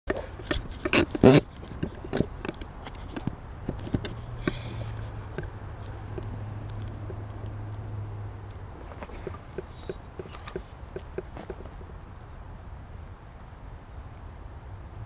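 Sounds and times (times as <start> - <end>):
camera handling knocks and rubs: 0.1 - 6.3, 8.8 - 11.8.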